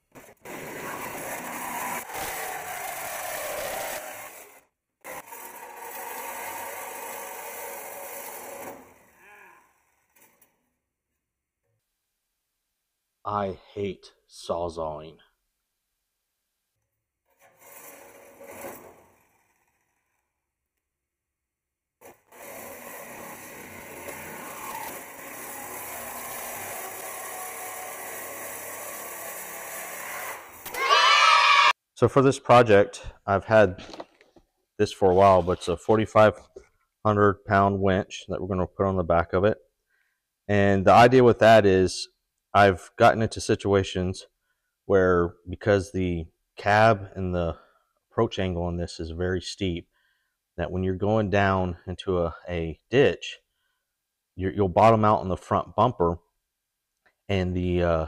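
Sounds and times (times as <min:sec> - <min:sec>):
reciprocating saw cutting metal: 0:00.2 - 0:10.6, 0:17.3 - 0:20.3, 0:22.0 - 0:31.7.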